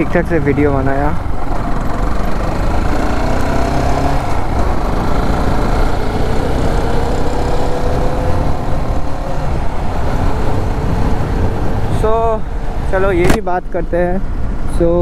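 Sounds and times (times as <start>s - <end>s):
motorcycle engine: 0.0s - 12.6s
wind rumble on microphone: 4.0s - 12.9s.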